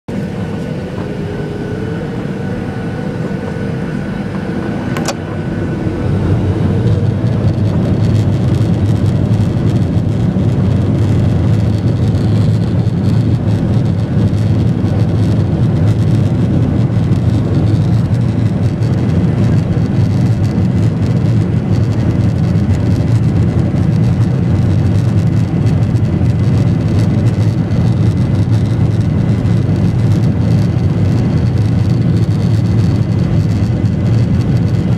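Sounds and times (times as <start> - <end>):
jet engines roaring: 0.1 - 34.9
single click: 5.0 - 5.2.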